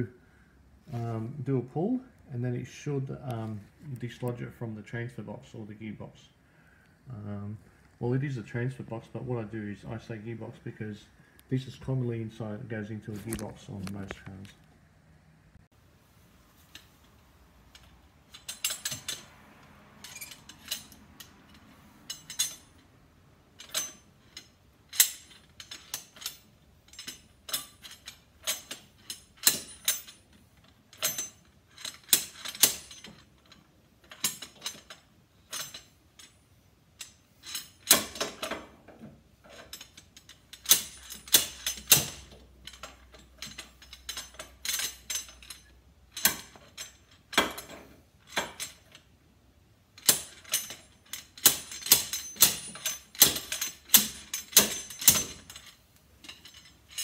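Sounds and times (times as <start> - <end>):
slide hammer metallic clacks: 50.0 - 57.0.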